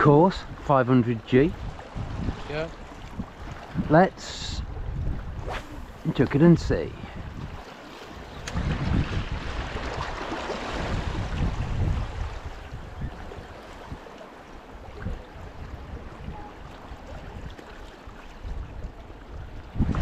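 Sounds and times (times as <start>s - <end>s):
calm sea water: 0.0s - 20.0s
wind buffeting microphone: 1.4s - 17.6s, 18.3s - 20.0s.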